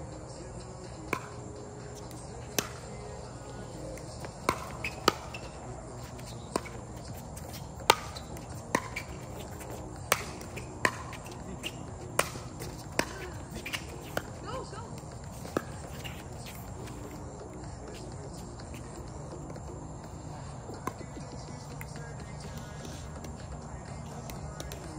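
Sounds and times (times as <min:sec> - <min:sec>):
paddles hitting plastic ball: 0:03.8 - 0:05.4, 0:06.1 - 0:14.4.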